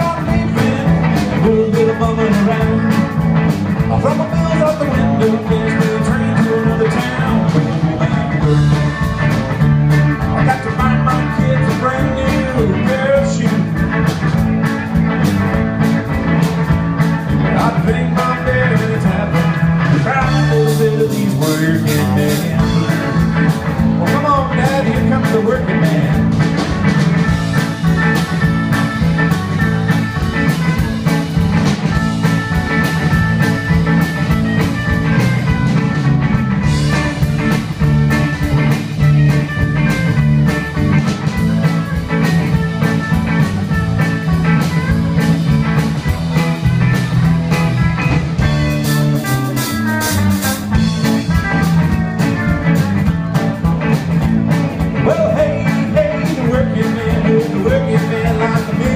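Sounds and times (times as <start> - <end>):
live rock band playing: 0.0 - 58.9.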